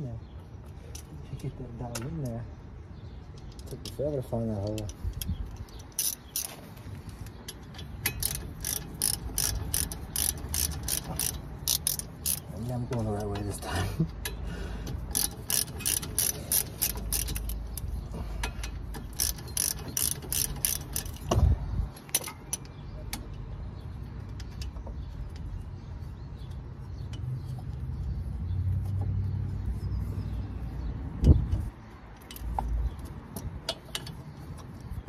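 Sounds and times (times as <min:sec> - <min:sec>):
ratchet wrench clicking: 0:04.6 - 0:06.6, 0:07.5 - 0:12.5, 0:14.2 - 0:21.3.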